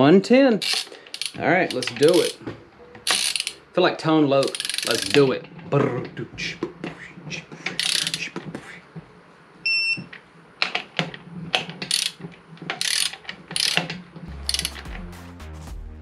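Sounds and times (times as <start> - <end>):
torque wrench ratcheting clicks: 0.6 - 2.4, 3.0 - 3.6, 4.4 - 5.3, 7.8 - 8.2, 11.8 - 14.9
short electronic beep: 9.7 - 10.0.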